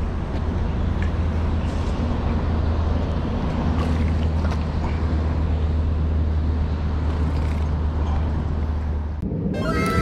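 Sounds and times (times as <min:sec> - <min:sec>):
low rumble: 0:08.4 - 0:10.0.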